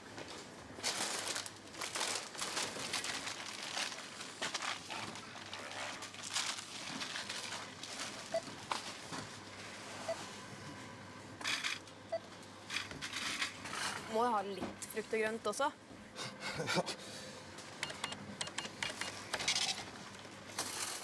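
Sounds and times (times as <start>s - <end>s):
plastic packaging crinkling: 0.8s - 8.9s.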